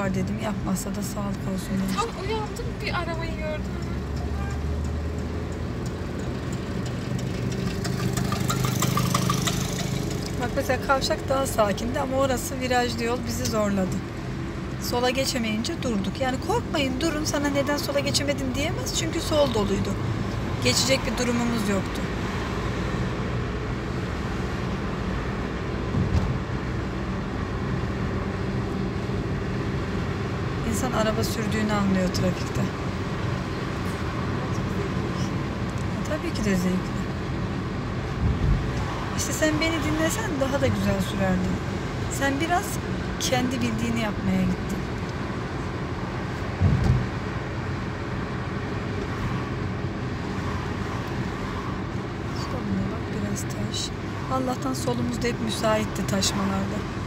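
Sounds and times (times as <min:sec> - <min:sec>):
car engine rumble: 0:00.0 - 0:57.0
tyres on the road: 0:00.0 - 0:57.0
low thump: 0:46.6 - 0:47.0.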